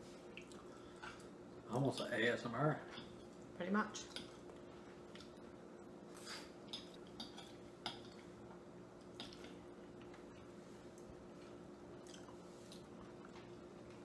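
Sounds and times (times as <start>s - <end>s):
steady low hum: 0.0s - 14.0s
forks tapping on plates: 6.7s - 8.3s.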